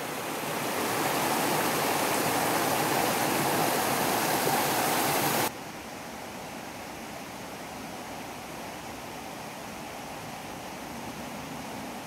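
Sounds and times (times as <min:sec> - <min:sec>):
water rushing over stones: 0:00.0 - 0:05.5.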